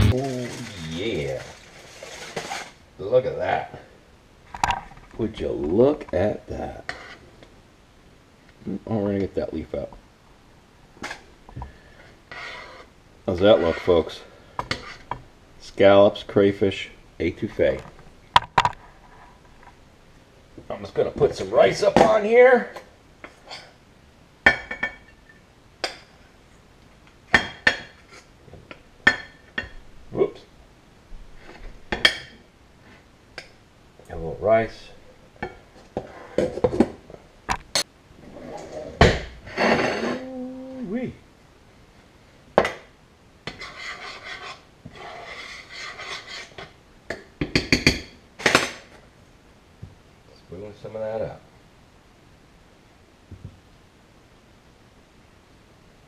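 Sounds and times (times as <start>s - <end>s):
spoon scraping a skillet: 0.0s - 2.8s, 6.8s - 7.3s, 11.8s - 15.2s, 38.3s - 40.2s, 43.4s - 48.1s.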